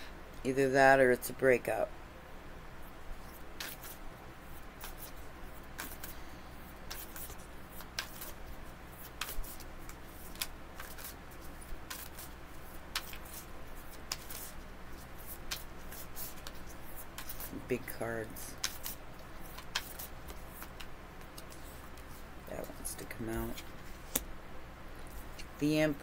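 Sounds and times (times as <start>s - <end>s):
cards being shuffled: 3.2s - 4.0s, 4.8s - 6.2s, 6.9s - 24.2s.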